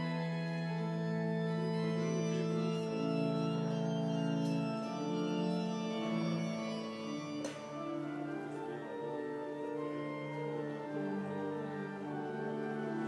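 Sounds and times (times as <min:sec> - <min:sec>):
organ playing slow chords: 0:00.0 - 0:13.0.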